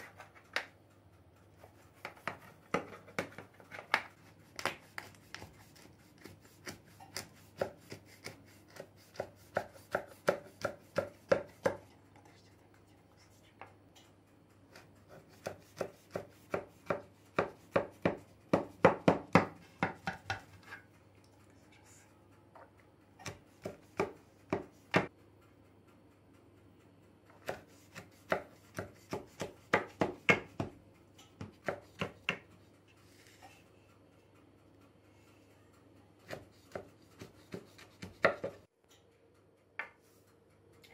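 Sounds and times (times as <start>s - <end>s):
knife cutting through dough: 1.6s - 11.9s, 14.7s - 19.1s, 27.3s - 30.7s, 36.2s - 38.7s.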